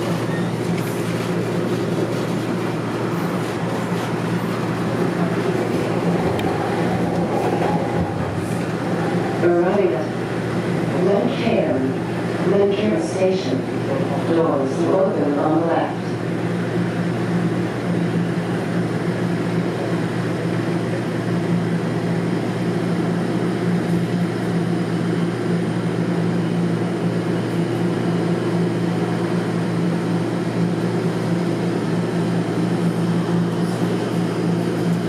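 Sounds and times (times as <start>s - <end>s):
wheels rumbling on rails: 0.0s - 16.4s, 25.5s - 35.0s
subway motor hum: 0.0s - 35.0s.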